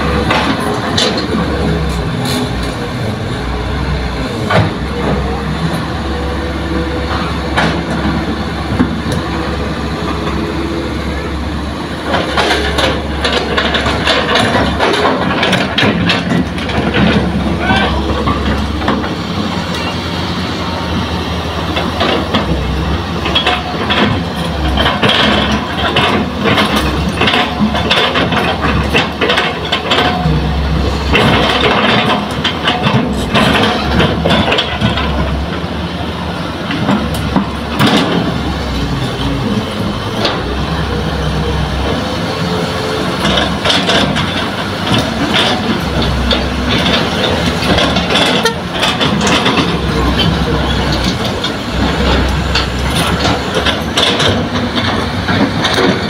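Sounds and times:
excavator diesel engine under load: 0.0 - 56.0.

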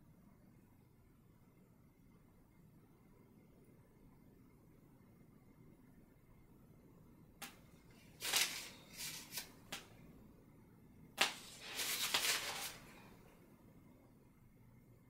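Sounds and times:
hissy scraping strokes: 11.2 - 13.0.

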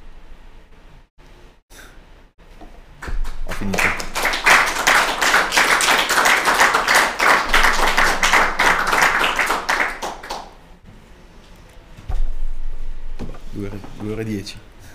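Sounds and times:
audience applauding: 3.0 - 10.6.

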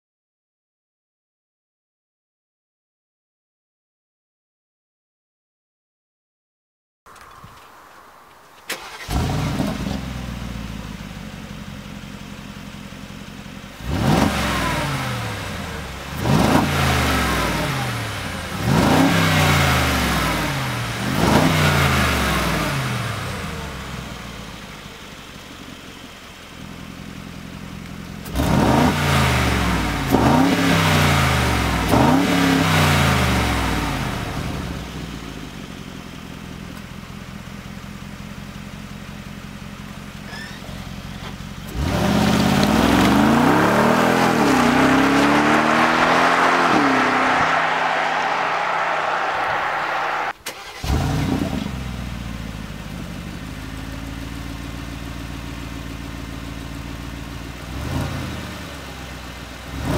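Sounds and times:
engine revving and idling: 8.7 - 59.9.

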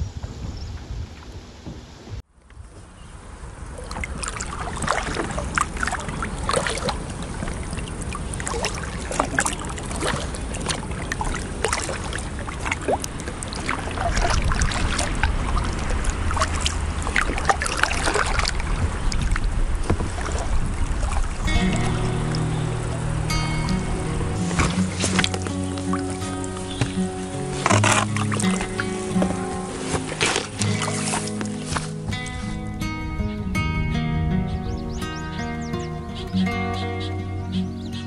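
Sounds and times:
wind rumble on microphone: 0.0 - 38.0
paddle splashing in water: 2.6 - 33.0.

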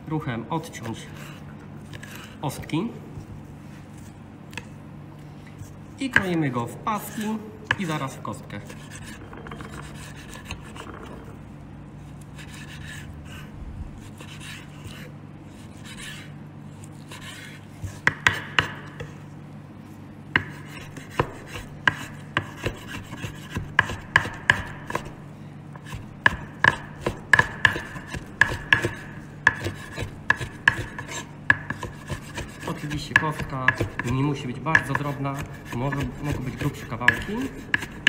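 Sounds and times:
knife knocking on wooden board: 8.8 - 11.4.

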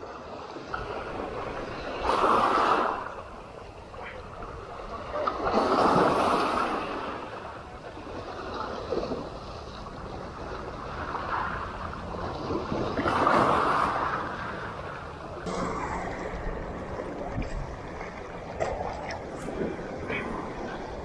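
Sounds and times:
small waves washing over rocks: 0.0 - 3.4, 4.6 - 15.0.

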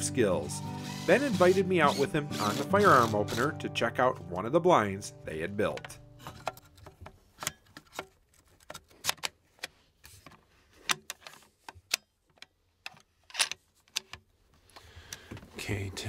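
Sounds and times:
rifle action clicks and clacks: 10.9 - 14.2.

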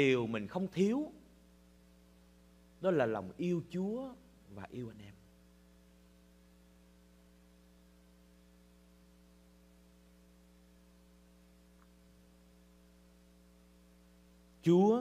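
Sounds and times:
electrical mains hum: 0.0 - 15.0
light hiss: 4.2 - 15.0.

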